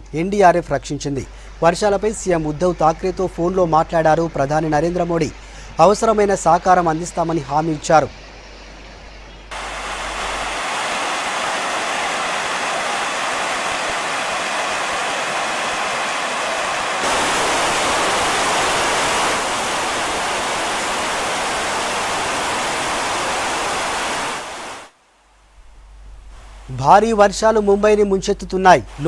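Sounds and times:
water rushing over spillway: 9.5 - 25.0.

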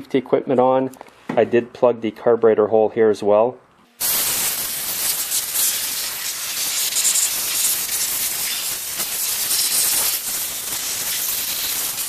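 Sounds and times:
air blow gun hissing: 4.0 - 12.0.

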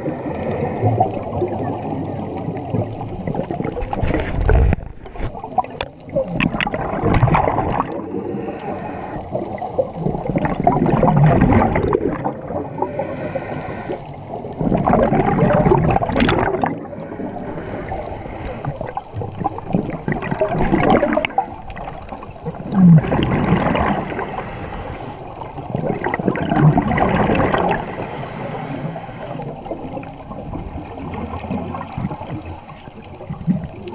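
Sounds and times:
exhaled bubbles gurgling: 0.0 - 33.9
regulator inhale hiss: 8.0 - 10.1, 12.5 - 14.5, 16.8 - 19.2, 23.8 - 25.5, 27.7 - 29.8.

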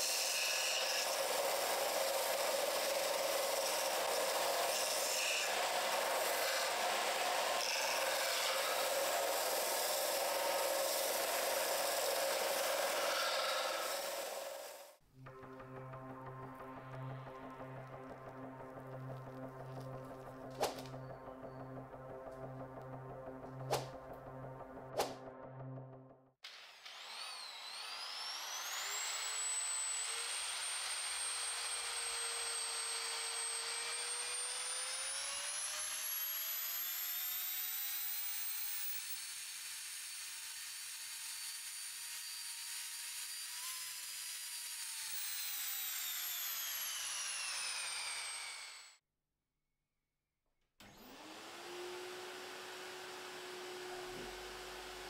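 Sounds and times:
power tool sanding metal: 0.0 - 15.9, 26.5 - 49.0, 50.9 - 55.0
polishing motor humming: 51.0 - 55.0.

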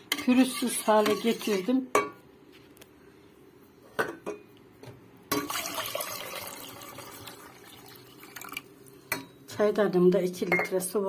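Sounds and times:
water pouring into a pot: 5.4 - 8.7.

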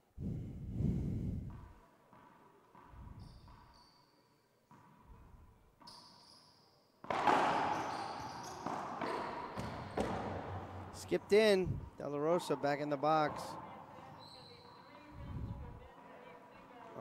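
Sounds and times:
sneaker squeaks: 2.8 - 10.4, 13.6 - 15.5
ball bouncing: 7.0 - 11.0.

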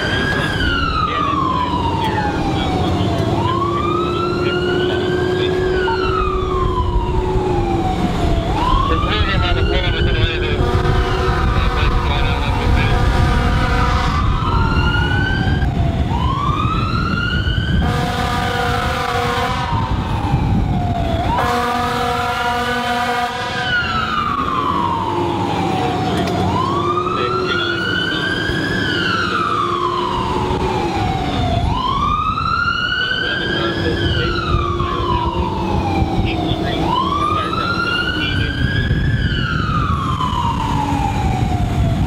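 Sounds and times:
fire engine siren wailing: 0.0 - 42.0
low engine and road rumble: 0.0 - 42.0
truck air horn blasts: 10.5 - 14.4, 17.8 - 19.8, 21.4 - 23.7.

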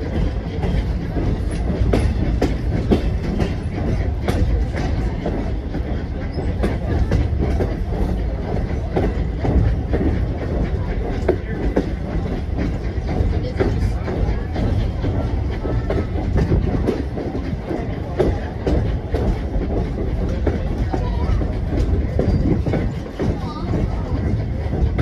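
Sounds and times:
train coach low rumble: 0.0 - 25.0
wheels clicking over rails: 0.0 - 25.0.

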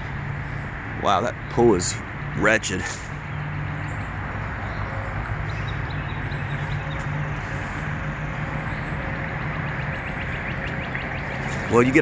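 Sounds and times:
highway traffic hum: 0.0 - 12.0.

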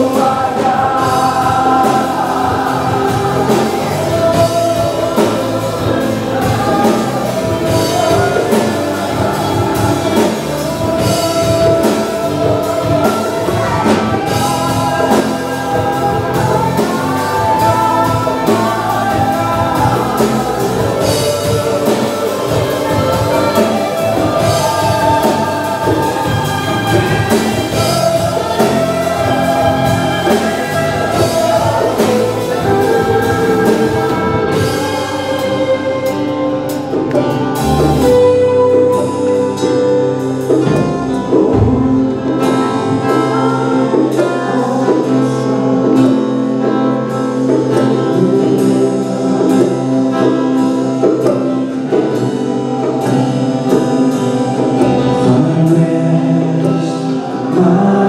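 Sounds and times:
women singing lead: 0.0 - 39.8
band playing praise song: 0.0 - 58.0.

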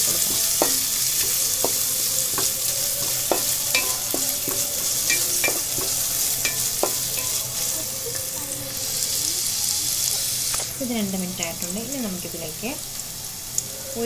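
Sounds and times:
spatula tapping and scraping pan: 0.0 - 7.7
vegetables sizzling in hot oil: 0.0 - 14.0.

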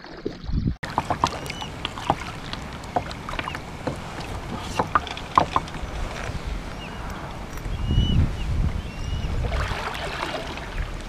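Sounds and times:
paddle dripping water: 0.0 - 11.0
water splashing against hull: 0.0 - 11.0.

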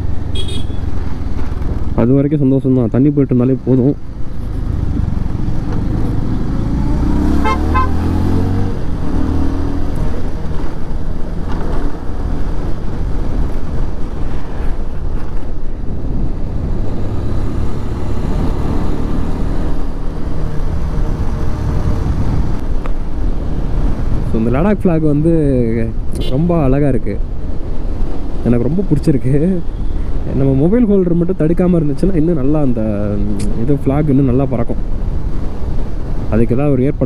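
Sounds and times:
motorcycle engine and wind rumble: 0.0 - 37.0
vehicle horn toot: 0.4 - 0.8, 7.4 - 8.0.

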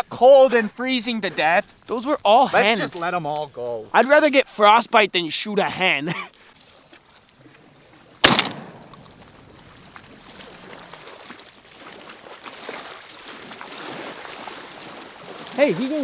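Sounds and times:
wind: 0.0 - 16.0
water moving against shore: 5.9 - 16.0
shotgun shot: 8.2 - 9.0.

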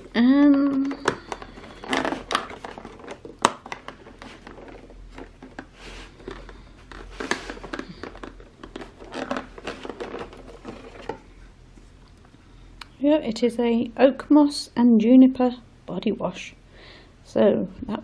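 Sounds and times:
cardboard and paper rustling: 0.0 - 11.3.

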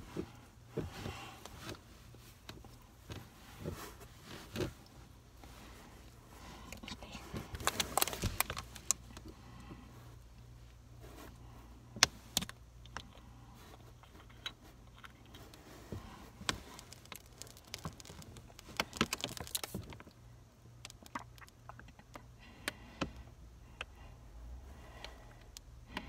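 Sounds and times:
crackly clicks and rustles: 0.1 - 24.0
handling noise in cardboard box: 7.3 - 9.2, 15.4 - 20.1.

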